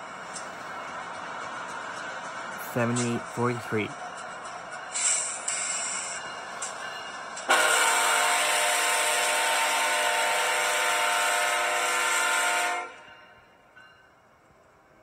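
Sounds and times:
locomotive air horn blast: 7.5 - 13.1.

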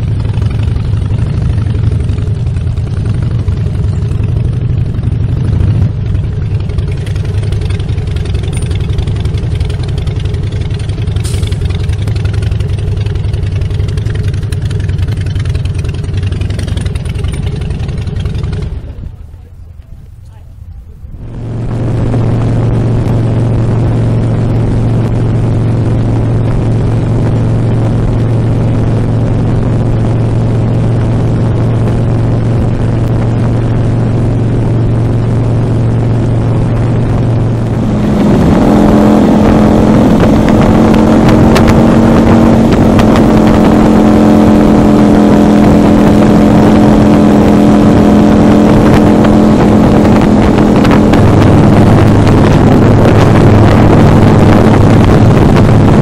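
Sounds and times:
motorcycle engine cruising: 0.0 - 56.0
wind rushing: 21.1 - 56.0.

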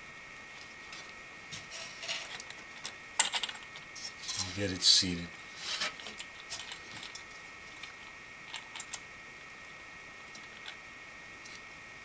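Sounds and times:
faint steady hiss: 3.8 - 12.0.

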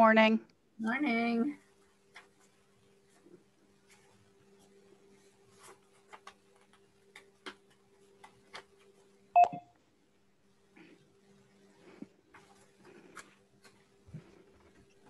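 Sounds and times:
short electronic beep: 9.4 - 9.6.

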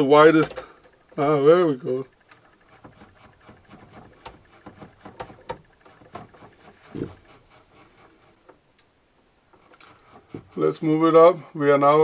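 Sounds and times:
rotary switch clicks: 0.2 - 6.6.

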